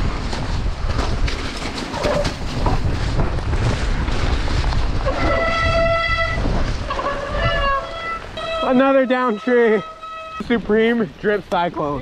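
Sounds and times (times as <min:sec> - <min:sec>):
wind buffeting microphone: 0:00.0 - 0:08.7
bike rattling over ground: 0:00.0 - 0:10.9
high squeal of brakes: 0:07.0 - 0:10.5.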